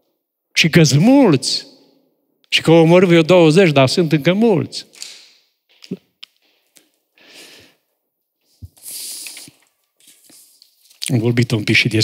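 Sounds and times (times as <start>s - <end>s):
man breathing into microphone: 7.2s - 7.8s.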